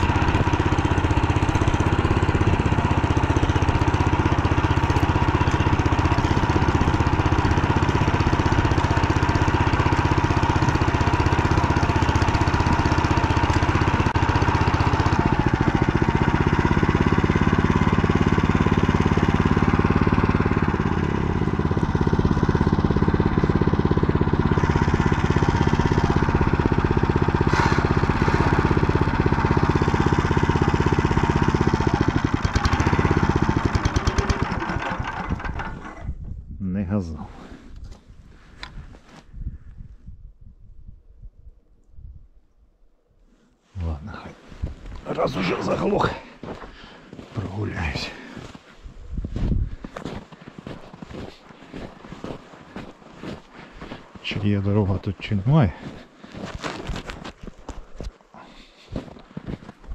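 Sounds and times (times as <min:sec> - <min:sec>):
engine running steadily: 0:00.0 - 0:36.2.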